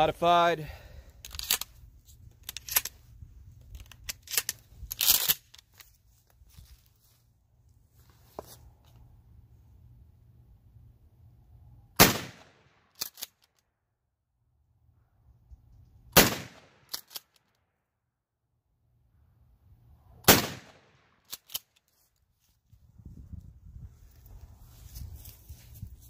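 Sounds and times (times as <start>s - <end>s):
loud shotgun shots: 12.0s - 12.7s, 16.2s - 16.9s, 20.2s - 21.1s.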